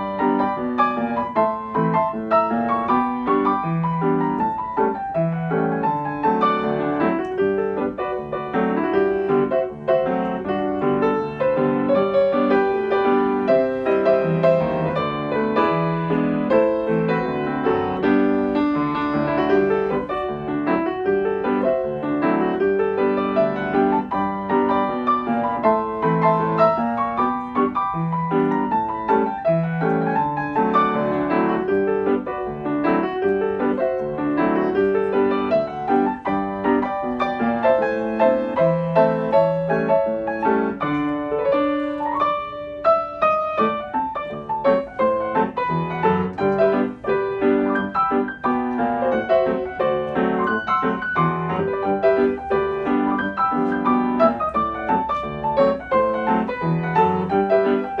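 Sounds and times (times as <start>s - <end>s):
ragtime piano: 0.0s - 58.0s.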